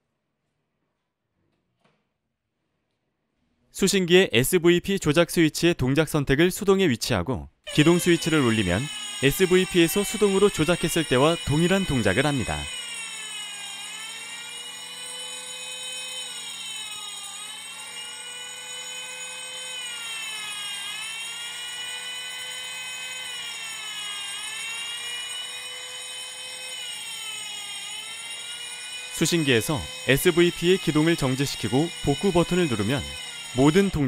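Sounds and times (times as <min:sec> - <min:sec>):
electronic fire alarm siren wailing: 0:07.7 - 0:34.0
fire alarm bell ringing: 0:07.7 - 0:34.0.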